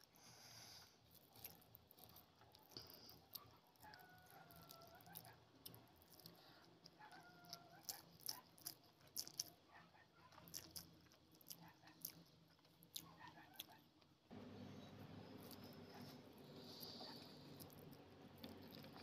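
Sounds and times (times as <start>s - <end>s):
fingers squishing rice: 0.0s - 14.0s
chewing with mouth clicks: 1.0s - 14.1s, 15.4s - 19.0s.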